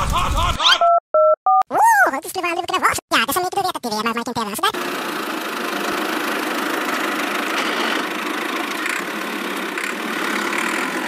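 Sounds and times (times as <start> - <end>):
toy tractor motor humming: 4.8 - 11.0.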